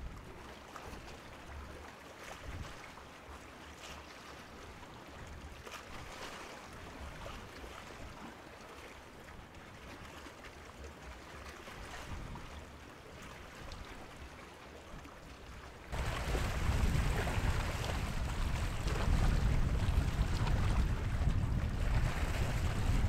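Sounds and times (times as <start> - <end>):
water lapping: 0.0 - 23.0
low rumble: 16.0 - 23.0.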